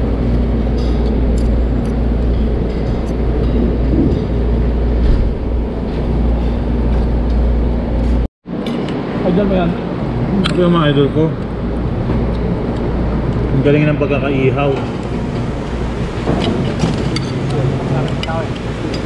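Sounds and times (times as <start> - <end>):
ship engine rumble: 0.0 - 8.3.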